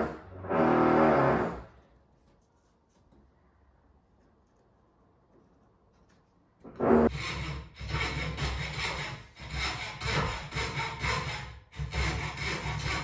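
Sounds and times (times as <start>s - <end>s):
hacksaw cutting wood: 6.7s - 13.0s.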